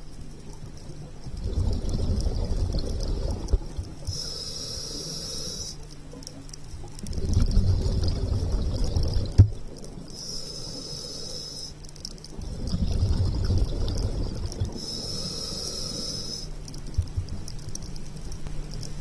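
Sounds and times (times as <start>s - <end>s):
exhaled bubbles underwater: 0.0s - 10.4s, 11.0s - 18.0s
regulator inhale hiss: 2.9s - 6.0s, 10.0s - 12.1s, 14.5s - 16.8s.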